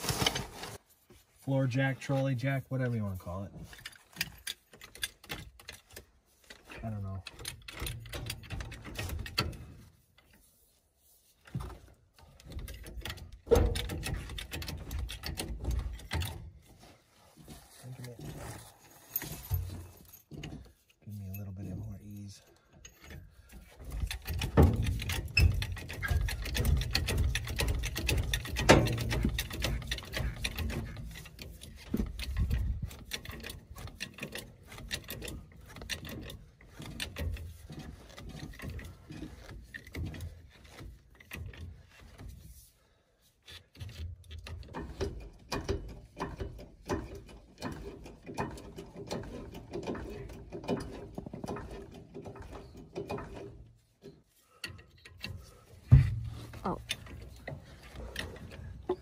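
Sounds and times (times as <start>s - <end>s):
trolley jack metal clicks and clanks: 3.6s - 10.4s, 11.6s - 16.7s, 22.5s - 42.5s, 43.4s - 59.0s.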